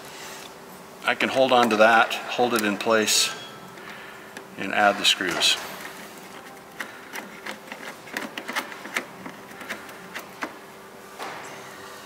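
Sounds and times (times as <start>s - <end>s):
faint steady hum: 0.0s - 12.0s
screws and plastic clicking on metal: 5.8s - 10.5s.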